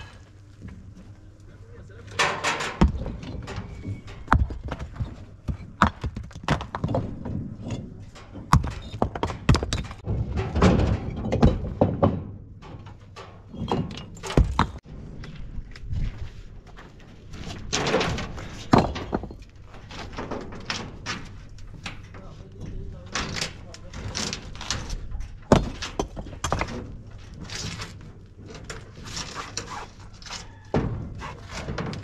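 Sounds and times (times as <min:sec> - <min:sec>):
stones thudding on dirt: 0:02.8 - 0:03.3, 0:04.2 - 0:07.4, 0:08.4 - 0:10.0, 0:14.3 - 0:14.8.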